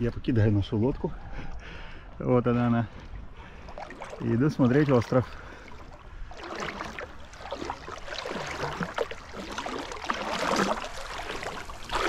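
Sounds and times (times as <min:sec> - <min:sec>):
seawater splashing at shore: 0:03.0 - 0:12.0.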